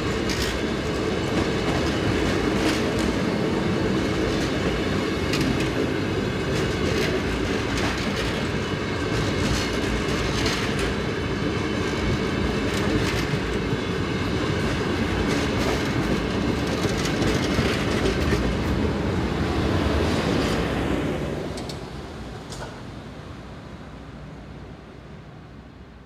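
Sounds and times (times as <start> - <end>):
wheels clicking over rail joints: 0.0 - 18.8
train carriages rumbling past: 0.0 - 26.0.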